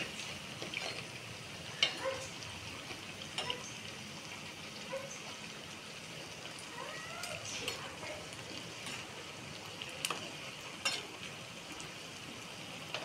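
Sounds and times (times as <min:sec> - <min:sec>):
food sizzling in hot oil: 0:00.0 - 0:13.0
metal skimmer clinking pan: 0:00.6 - 0:01.1, 0:01.8 - 0:02.3, 0:03.3 - 0:03.7, 0:10.8 - 0:11.2.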